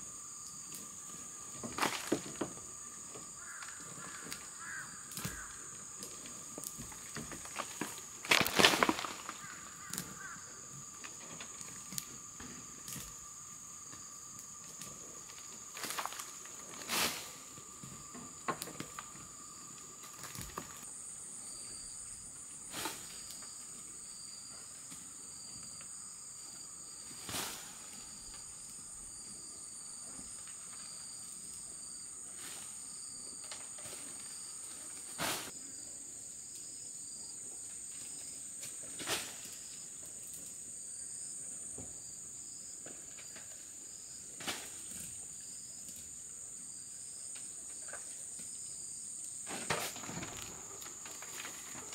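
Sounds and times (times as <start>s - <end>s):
insect chirping in pulses: 0.0s - 37.4s
high-pitched insect chorus: 0.0s - 51.9s.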